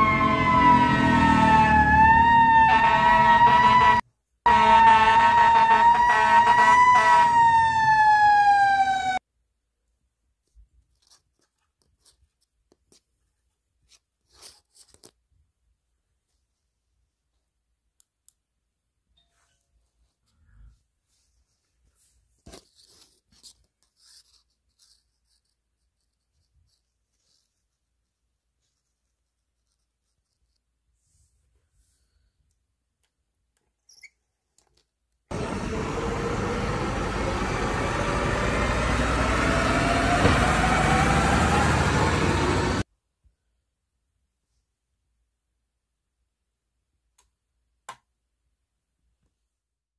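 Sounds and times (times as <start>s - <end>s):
cord toy rustling and scraping: 10.4s - 15.2s, 19.8s - 32.1s
large vehicle engine rumbling: 35.3s - 42.8s.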